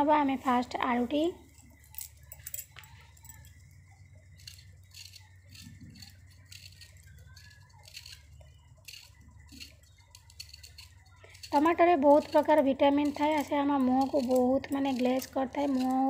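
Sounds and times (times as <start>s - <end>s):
peeler scraping potato skin: 4.3s - 16.0s.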